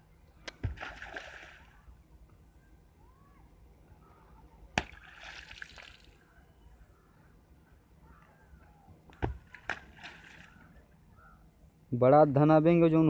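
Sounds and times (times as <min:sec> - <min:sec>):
water splashing: 0:00.5 - 0:01.9, 0:04.8 - 0:06.2, 0:09.2 - 0:10.7
rock smacking into muddy pool: 0:04.8 - 0:06.0, 0:09.2 - 0:10.4.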